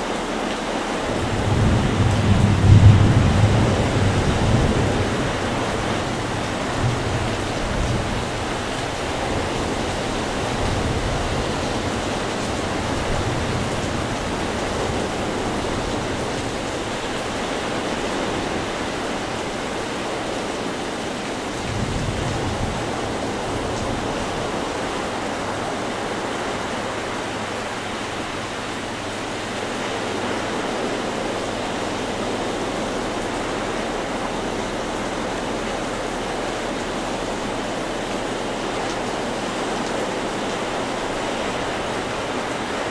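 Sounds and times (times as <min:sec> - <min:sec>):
surf breaking on a beach: 0:00.0 - 0:29.0.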